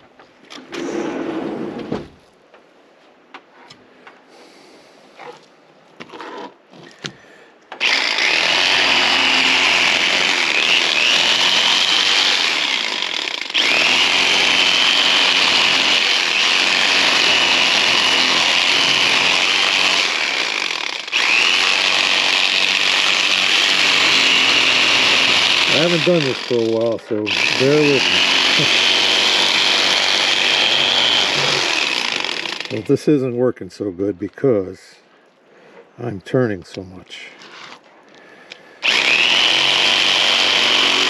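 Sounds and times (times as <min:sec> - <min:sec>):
electric fillet knife whining: 0:07.8 - 0:32.8, 0:38.8 - 0:41.0.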